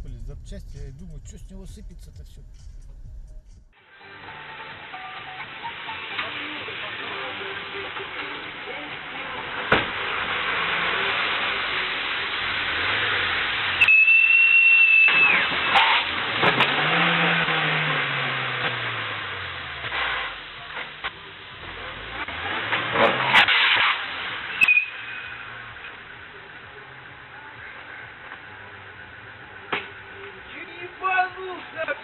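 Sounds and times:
car engine revving: 0.0 - 3.8, 8.3 - 30.5
high squeal: 13.8 - 16.1, 24.5 - 25.5.

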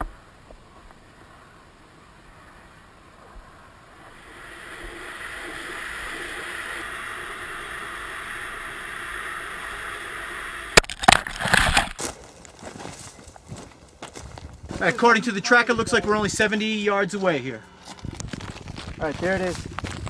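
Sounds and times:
air rushing hiss: 3.5 - 12.0.

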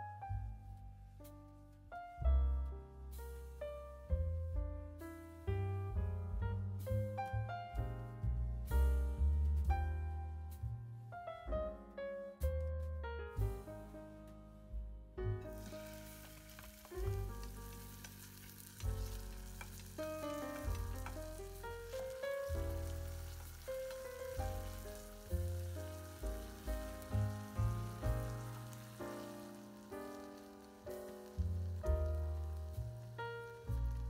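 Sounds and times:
slow background music: 0.0 - 34.0
chopsticks stirring in pot: 15.5 - 28.9
food sizzling in oil: 15.5 - 34.0.

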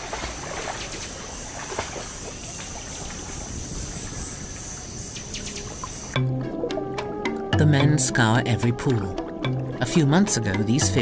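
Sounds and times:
insects droning: 0.0 - 6.3
trickling water: 0.0 - 11.0.

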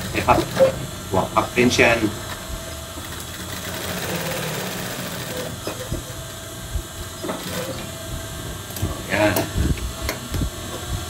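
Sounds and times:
industrial sewing machine running: 0.0 - 8.0.

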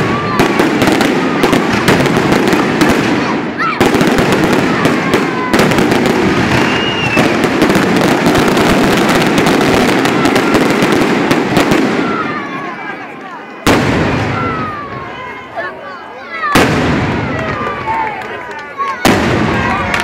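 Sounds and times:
fireworks crackling: 0.0 - 15.8, 16.4 - 20.0
whistling firework shell: 6.5 - 7.5.

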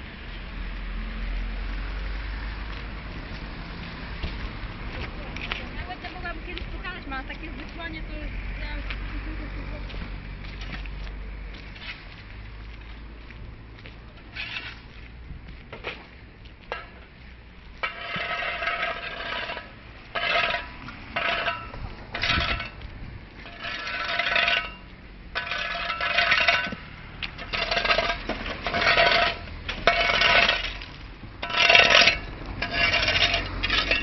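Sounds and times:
rubble clattering as shovelled: 17.8 - 22.8, 23.4 - 24.8, 25.4 - 34.0.

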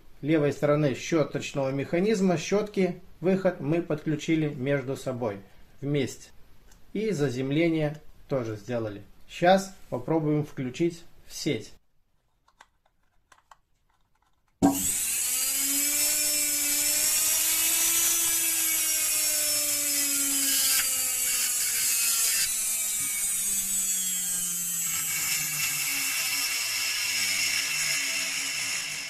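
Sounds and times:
electric motor whine: 14.6 - 29.0.

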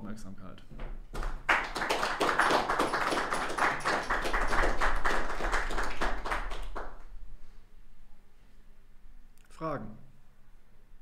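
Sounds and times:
audience applauding: 1.1 - 7.1.

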